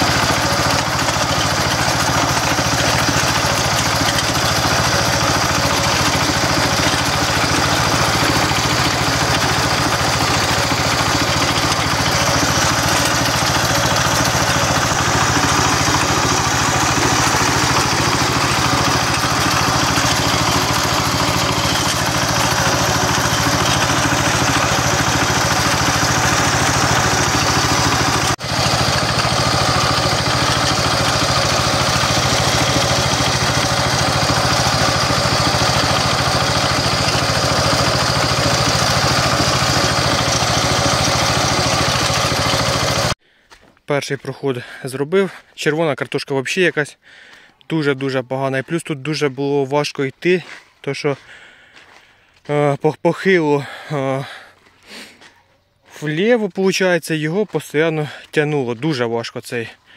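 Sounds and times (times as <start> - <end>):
diesel engine running: 0.0 - 43.2.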